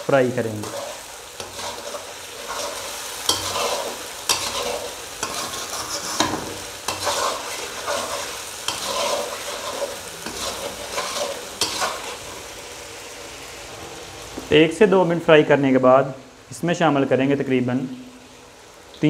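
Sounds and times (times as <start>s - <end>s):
sauce sizzling: 0.0s - 19.0s
metal spatula scraping pan: 0.6s - 12.4s.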